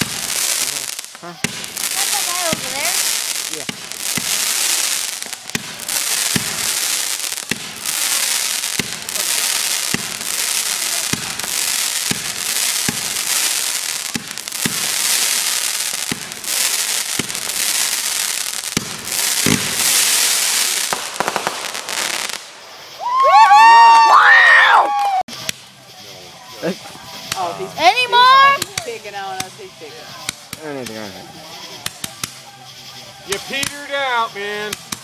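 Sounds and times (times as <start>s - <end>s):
firework bursts crackling: 0.0s - 35.0s
firework launch thumps: 18.6s - 22.5s.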